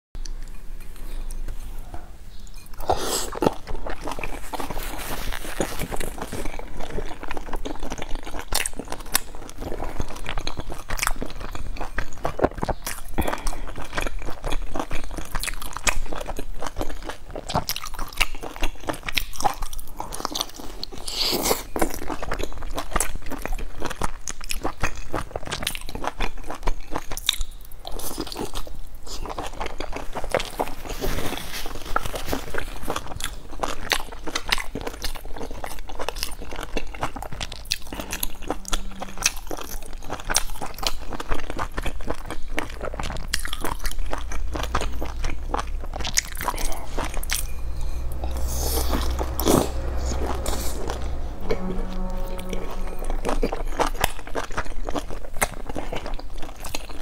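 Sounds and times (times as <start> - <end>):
person chewing crunchy food: 0.2 - 48.4.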